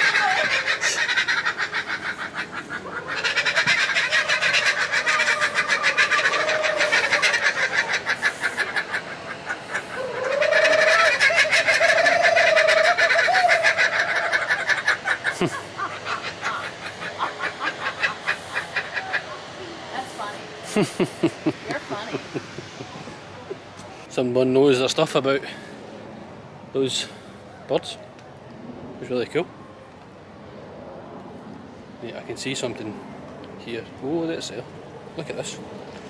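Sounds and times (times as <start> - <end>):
person imitating bird calls: 0.0 - 8.8, 9.7 - 16.8.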